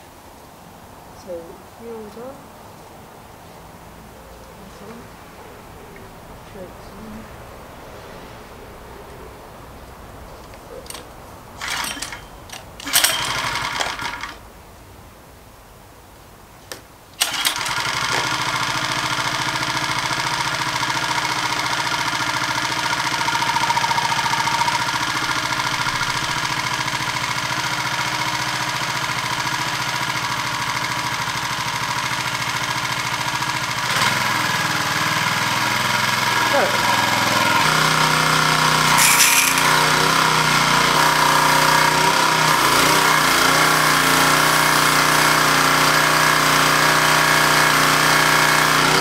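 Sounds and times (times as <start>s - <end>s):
small petrol engine running: 10.5s - 14.4s, 17.2s - 49.0s
starter cord pulls: 10.5s - 14.4s, 16.7s - 28.4s, 36.7s - 43.1s.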